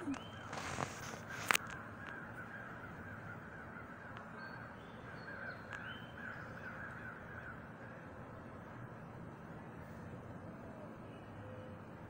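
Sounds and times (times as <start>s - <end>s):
crows cawing: 0.5s - 8.2s.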